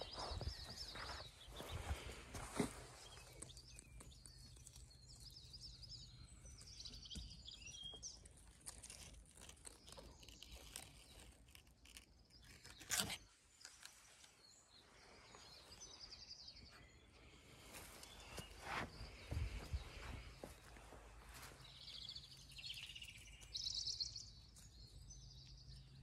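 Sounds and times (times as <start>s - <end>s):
small birds chirping: 0.0s - 26.0s
sharp crunch: 8.6s - 14.0s.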